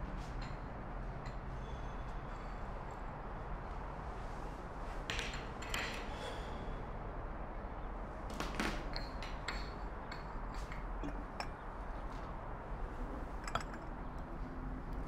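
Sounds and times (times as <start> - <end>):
ceramic cups clinking: 9.5 - 11.6, 13.2 - 14.0.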